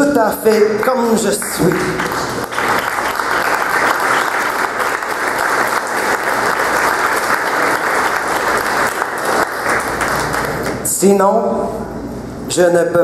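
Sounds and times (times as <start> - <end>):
audience applauding: 0.5 - 10.8.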